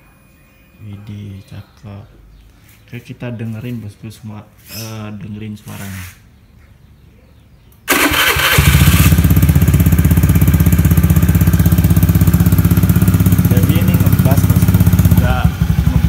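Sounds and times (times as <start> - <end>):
scooter engine starting and idling: 7.8 - 16.0.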